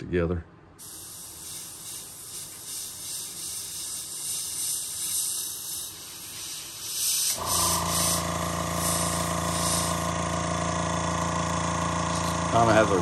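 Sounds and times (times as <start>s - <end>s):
airbrush spraying hisses: 0.8s - 10.2s
air compressor humming: 0.8s - 13.0s.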